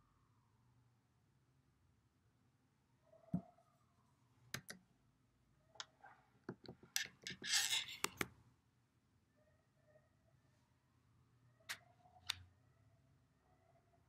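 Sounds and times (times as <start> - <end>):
hands clicking and tapping device: 6.5 - 8.3.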